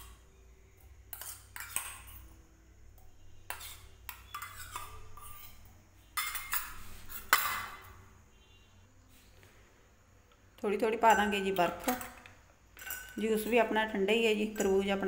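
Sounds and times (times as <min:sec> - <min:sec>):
spoon scraping a steel bowl: 0:01.1 - 0:02.3, 0:03.0 - 0:07.9, 0:12.8 - 0:15.0
glasses knocking and clinking: 0:12.8 - 0:13.4.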